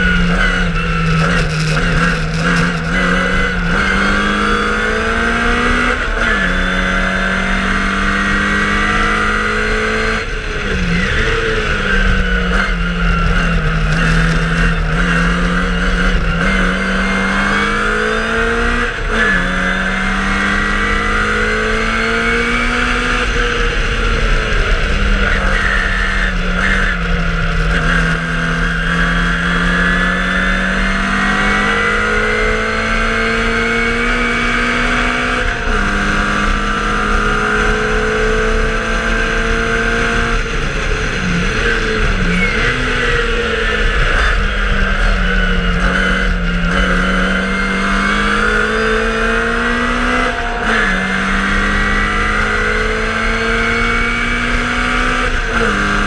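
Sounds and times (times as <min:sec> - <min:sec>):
racing car engine under load: 0:00.0 - 0:56.0.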